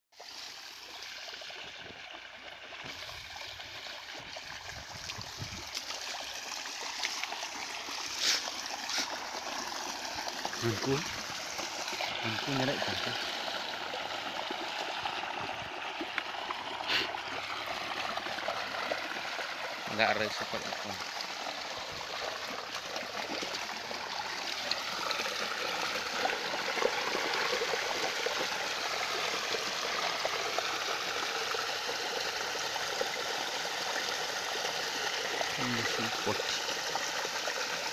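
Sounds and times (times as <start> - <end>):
small splashes and crackles: 0.2 - 31.6
water trickling through net: 2.8 - 30.8.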